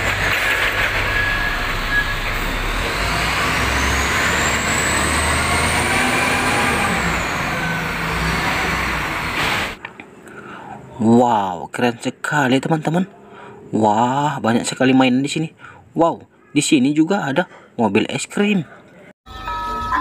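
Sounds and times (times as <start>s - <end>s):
high whine: 0.0s - 9.8s
wheel loader diesel engine: 0.0s - 10.1s.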